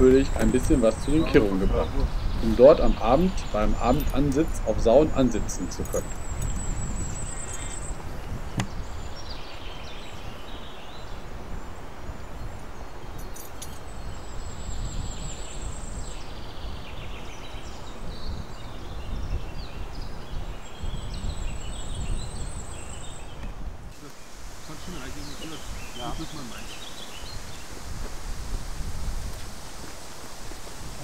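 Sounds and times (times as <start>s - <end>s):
bird chirps: 0.0s - 11.2s, 12.4s - 27.9s
high thin bird trill: 5.9s - 8.9s.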